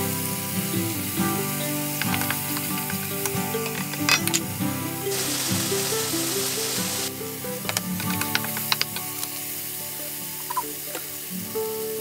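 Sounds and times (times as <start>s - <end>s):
background music: 0.0s - 12.0s
food sizzling in a wok: 0.0s - 12.0s
spatula clicking against pan: 1.9s - 4.3s, 7.7s - 9.4s.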